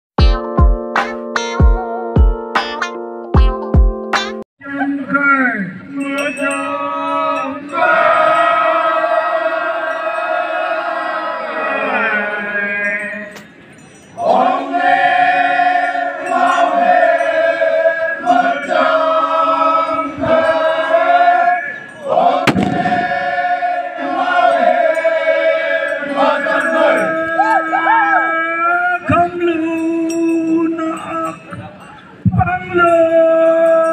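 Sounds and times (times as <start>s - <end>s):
men chanting in unison: 6.5s - 13.3s, 14.2s - 29.2s
sharp crack: 22.5s - 23.4s.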